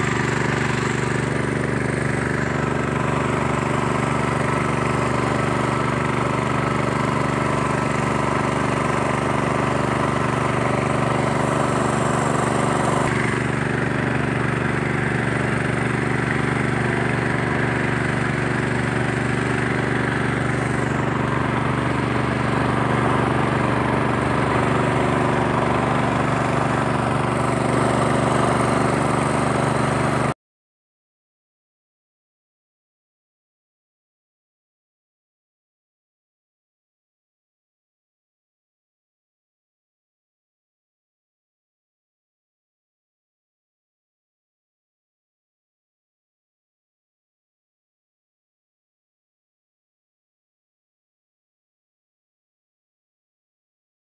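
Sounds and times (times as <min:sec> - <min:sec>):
engine running steadily: 0:00.0 - 0:30.4.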